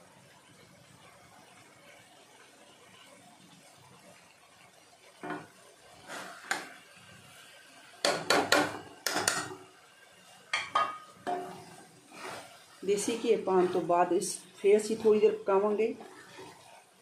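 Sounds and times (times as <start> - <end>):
spatula scraping a metal pan: 6.0 - 6.6, 10.9 - 16.9.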